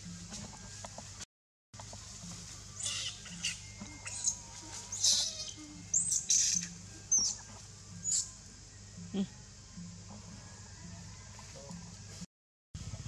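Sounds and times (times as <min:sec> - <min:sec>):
baby monkey squealing: 0:02.8 - 0:07.4, 0:08.0 - 0:08.3.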